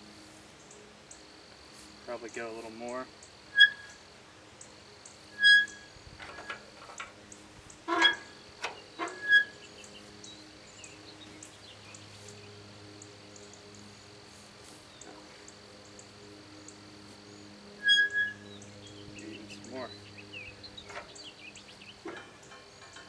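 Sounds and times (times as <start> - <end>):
insects droning: 0.0 - 23.0
metal knocks and clanks: 7.9 - 9.5, 22.0 - 23.0.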